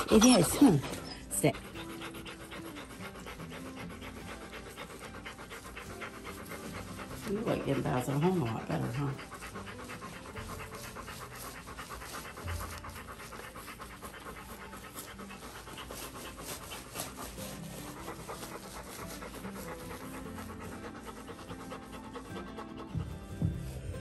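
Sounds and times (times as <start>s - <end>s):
dog panting quickly: 0.0s - 24.0s.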